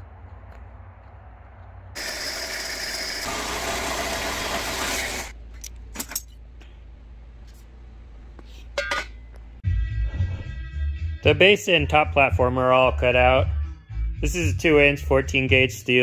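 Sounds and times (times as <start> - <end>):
band saw cutting steel: 2.0 - 5.4
saw motor humming: 2.0 - 5.4.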